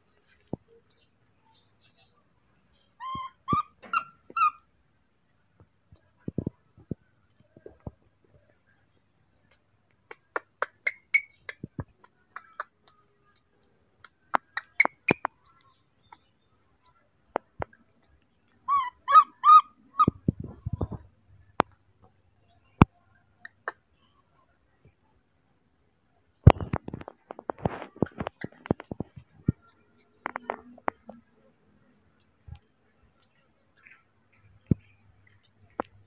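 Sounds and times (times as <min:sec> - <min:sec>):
baby monkey squeaking: 0:03.0 - 0:04.6, 0:10.1 - 0:13.0, 0:14.0 - 0:15.4, 0:18.6 - 0:21.0
sharp clicks and taps: 0:09.4 - 0:16.2, 0:34.6 - 0:36.0.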